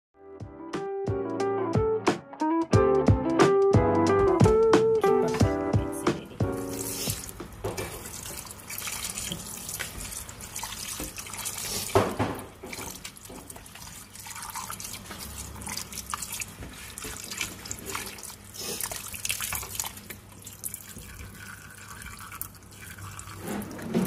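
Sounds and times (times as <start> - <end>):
tap water running into sink: 6.4 - 24.0.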